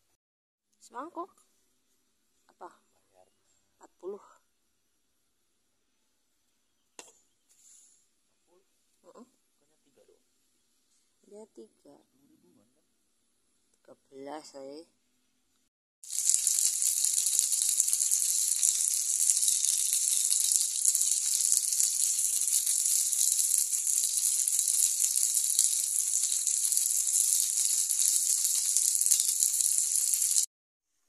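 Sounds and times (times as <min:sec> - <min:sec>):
chicken deep-frying in oil: 0:16.0 - 0:30.5.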